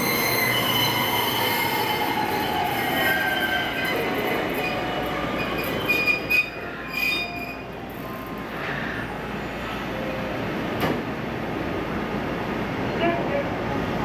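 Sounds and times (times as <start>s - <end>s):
high-pitched brake squeals: 0.0s - 8.2s
electric train rumbling: 0.0s - 14.0s.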